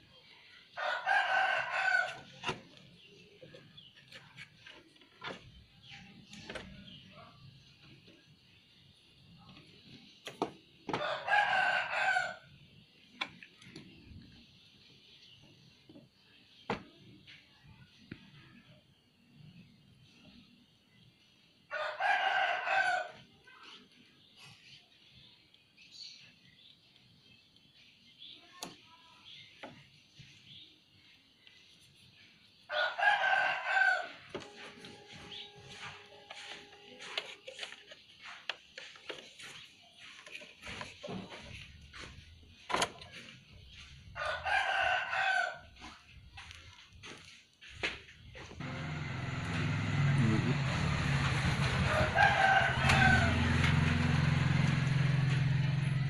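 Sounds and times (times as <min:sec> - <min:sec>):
rooster crowing: 0:00.8 - 0:02.4, 0:11.0 - 0:12.5, 0:21.7 - 0:23.2, 0:32.7 - 0:37.2, 0:44.2 - 0:45.8, 0:48.6 - 0:56.0.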